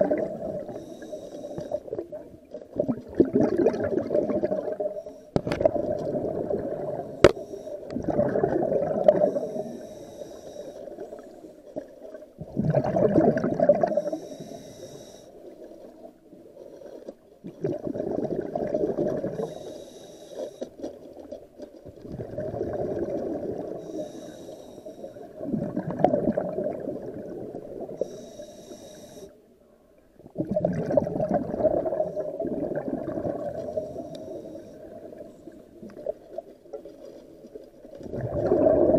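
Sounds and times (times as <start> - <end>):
exhaled air bubbling underwater: 0.0 - 38.9
regulator inhale hiss: 0.6 - 1.9, 4.9 - 5.4, 7.1 - 7.9, 9.2 - 11.6, 13.9 - 15.5, 19.3 - 20.8, 23.7 - 25.3, 28.0 - 29.4, 33.7 - 35.7.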